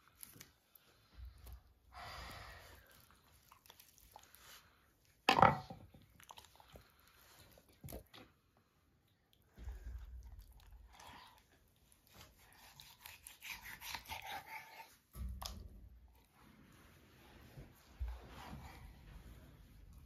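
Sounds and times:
knife crunching through chicken: 0:12.4 - 0:14.8.

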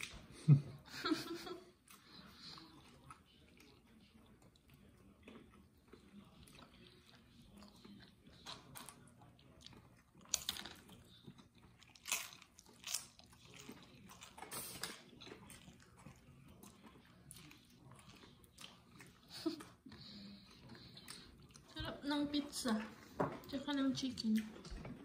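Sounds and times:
person chewing meat off bones: 0:01.8 - 0:21.8.

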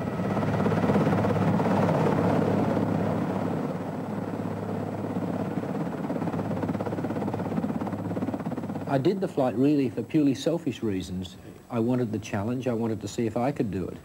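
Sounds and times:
helicopter hovering: 0:00.0 - 0:10.1.

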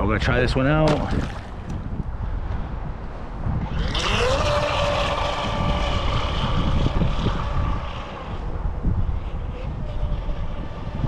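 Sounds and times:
wind rumble on microphone: 0:00.0 - 0:11.0
electric motor whine: 0:03.6 - 0:11.0.

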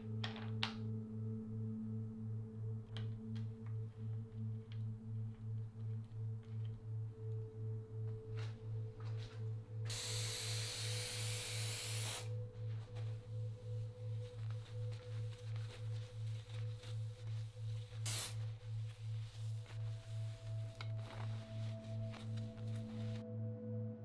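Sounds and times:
low pulsing drone: 0:00.8 - 0:24.0
aerosol spray can hissing: 0:09.9 - 0:12.3, 0:18.0 - 0:18.4.

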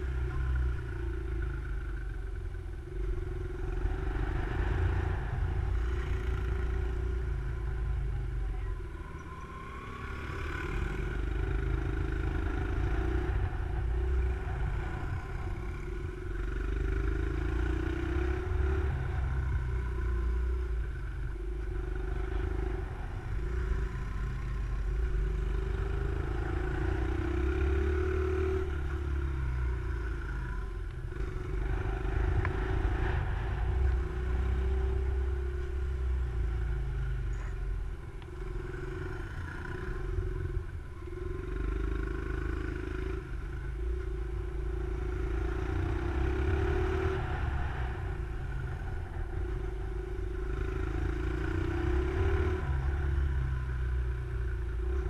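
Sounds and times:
motorcycle engine revving: 0:00.0 - 0:55.0
wind rumble on microphone: 0:10.8 - 0:27.0, 0:28.2 - 0:41.4, 0:43.1 - 0:55.0.

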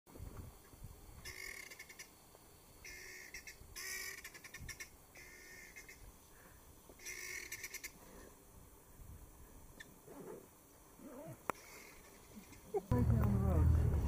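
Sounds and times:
guineafowl rattling calls: 0:01.2 - 0:02.1, 0:02.8 - 0:06.1, 0:07.0 - 0:08.0, 0:11.5 - 0:12.8.

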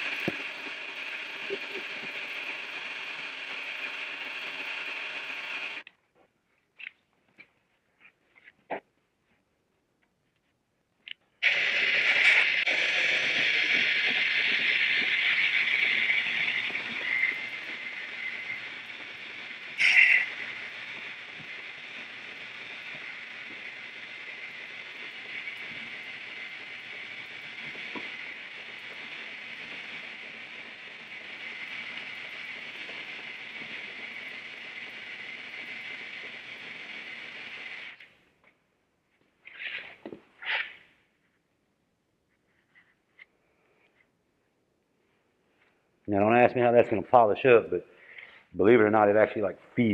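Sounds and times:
belt grinder sanding: 0:00.0 - 0:05.8, 0:11.4 - 0:38.1.

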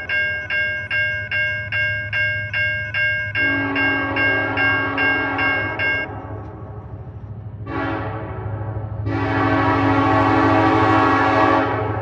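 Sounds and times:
locomotive air horn blasts: 0:03.4 - 0:06.8, 0:07.6 - 0:12.0.

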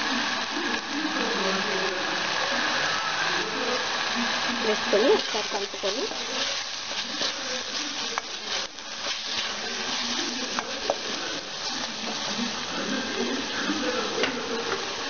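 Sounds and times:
masala sizzling: 0:00.0 - 0:15.0
wooden spatula stirring paste: 0:05.2 - 0:12.6.

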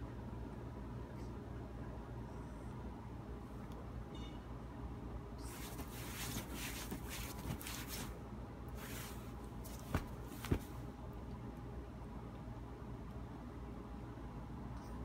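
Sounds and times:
steady low hum: 0:00.0 - 0:15.0
bedding and clothing rustling: 0:05.4 - 0:10.9.

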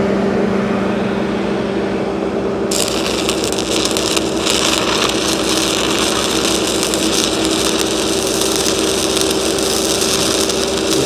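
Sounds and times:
engine hum: 0:00.0 - 0:11.0
welding arc crackling: 0:02.7 - 0:11.0.

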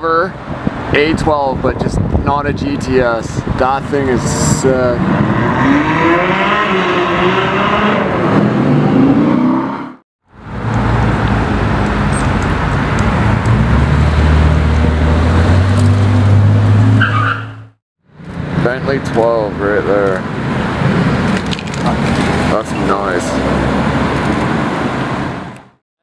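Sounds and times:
sports car engine pulling away: 0:05.0 - 0:09.9.

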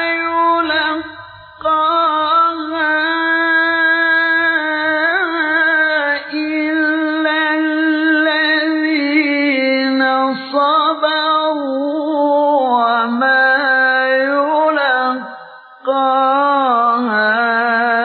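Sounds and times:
man reciting in melodic chant: 0:00.0 - 0:18.0
man breathing in: 0:01.1 - 0:01.7, 0:15.4 - 0:15.8.

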